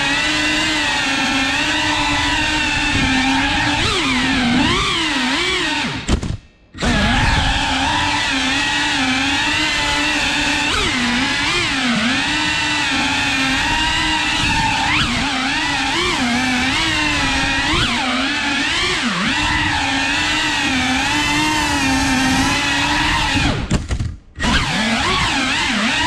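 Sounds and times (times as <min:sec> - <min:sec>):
drone propellers whining: 0:00.0 - 0:23.8, 0:24.4 - 0:26.0.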